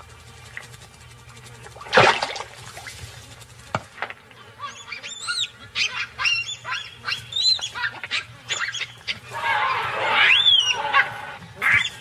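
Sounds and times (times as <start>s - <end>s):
baboons screaming in alarm: 4.4s - 12.0s.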